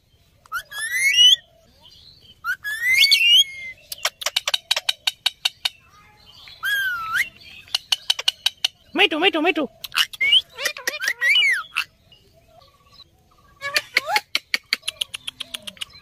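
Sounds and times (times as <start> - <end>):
parakeets whistled calls: 0.5 - 1.5, 2.4 - 6.0, 6.6 - 8.7, 9.9 - 11.9
parakeets clicking chatter: 2.7 - 5.9, 6.6 - 11.9, 13.4 - 16.0.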